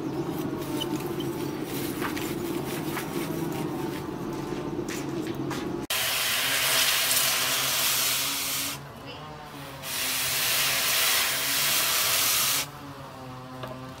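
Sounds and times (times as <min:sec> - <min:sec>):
steady low hum: 0:00.0 - 0:05.9
hot steel quenched in water hissing: 0:05.9 - 0:08.8, 0:09.8 - 0:12.7.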